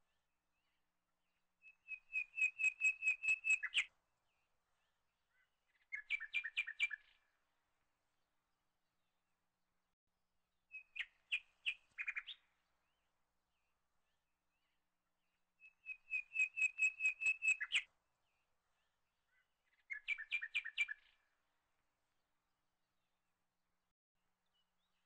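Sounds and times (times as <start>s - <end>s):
bird chirping: 1.6s - 3.9s, 4.8s - 7.4s, 10.7s - 14.8s, 15.6s - 21.2s.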